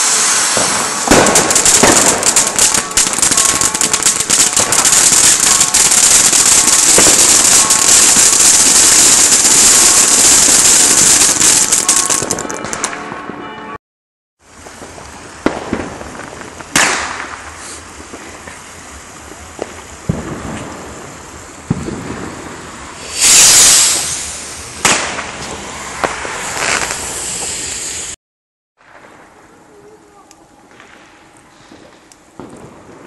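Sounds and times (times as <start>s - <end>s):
skyrocket launching with a hiss: 0.0s - 3.8s, 16.7s - 18.7s, 22.4s - 28.2s
firecrackers banging: 0.0s - 13.6s, 14.5s - 28.2s.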